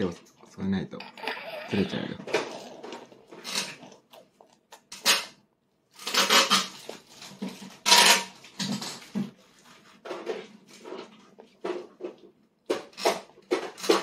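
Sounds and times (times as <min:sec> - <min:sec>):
toddler slurping food: 0:01.1 - 0:05.0.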